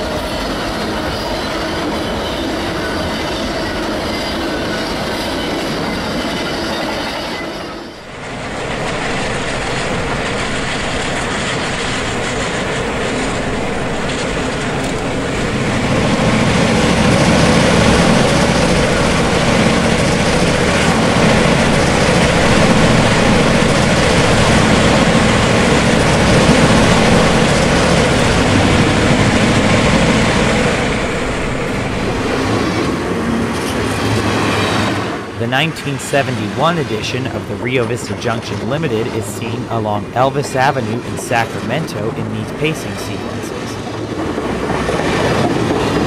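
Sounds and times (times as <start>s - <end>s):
train engines and wheels rumbling: 0.0s - 46.0s.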